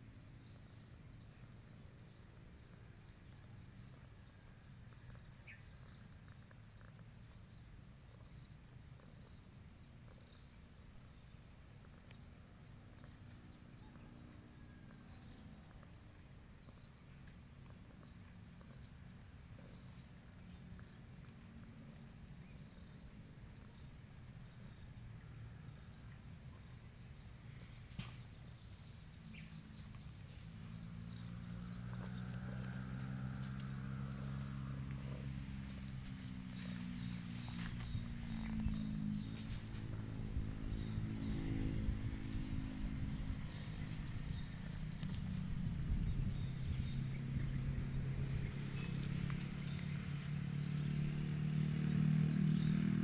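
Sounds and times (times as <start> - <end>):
insect drone: 0.0 - 53.0
cat purring: 1.9 - 26.8, 29.2 - 50.0
rustles and clicks from grass: 26.5 - 50.5.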